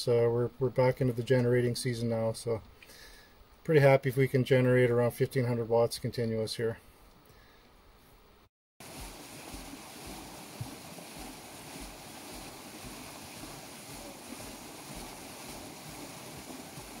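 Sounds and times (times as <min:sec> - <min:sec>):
waterwheel churning river water: 0:08.8 - 0:17.0.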